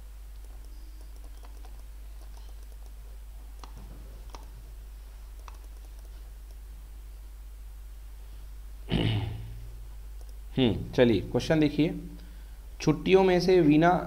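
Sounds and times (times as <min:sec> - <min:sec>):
low electrical hum: 0:00.0 - 0:14.0
keyboard and mouse clicks: 0:00.3 - 0:04.6, 0:05.3 - 0:06.6, 0:10.2 - 0:10.4.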